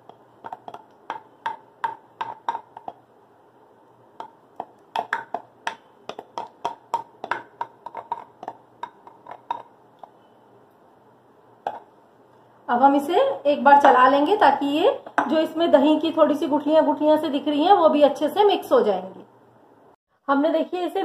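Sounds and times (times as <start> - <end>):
spatula knocking on glass bowl: 0.0 - 3.0, 4.2 - 9.7.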